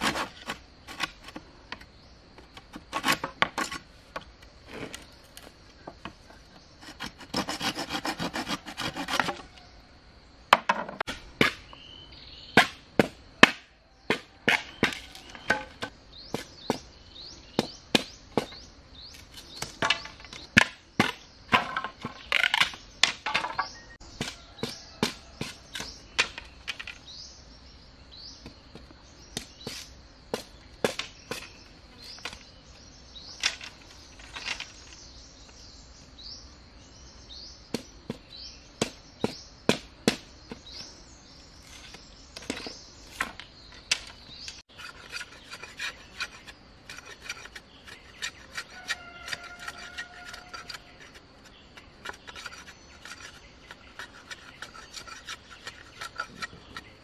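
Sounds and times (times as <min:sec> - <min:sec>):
machete chopping bamboo: 0:12.6 - 0:16.8, 0:17.6 - 0:18.6, 0:19.5 - 0:26.4, 0:29.3 - 0:31.6, 0:38.8 - 0:40.6.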